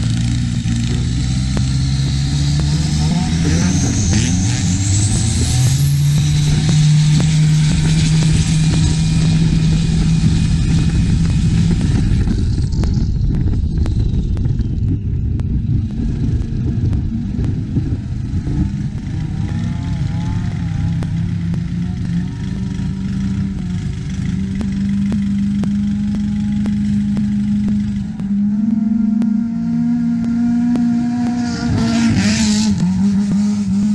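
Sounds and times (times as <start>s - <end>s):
boat diesel engine running hard: 0.0s - 29.9s
wind: 0.0s - 33.9s.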